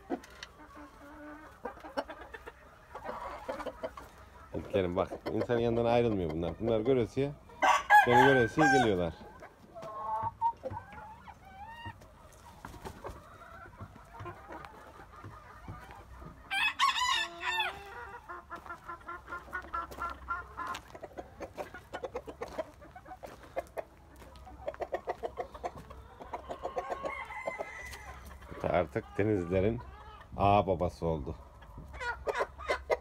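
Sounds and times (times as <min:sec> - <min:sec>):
chickens clucking: 0:00.0 - 0:33.0
rooster crowing: 0:07.6 - 0:08.9, 0:16.5 - 0:17.8, 0:26.9 - 0:28.2.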